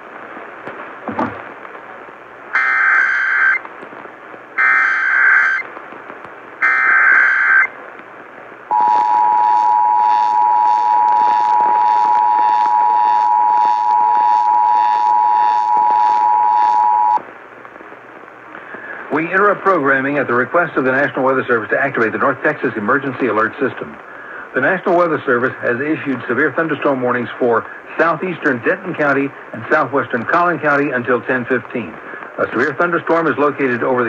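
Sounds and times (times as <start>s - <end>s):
data bursts over radio: 2.5s - 3.6s, 4.6s - 5.8s, 6.6s - 7.8s, 8.7s - 17.2s
two-tone attention signal: 8.7s - 17.2s.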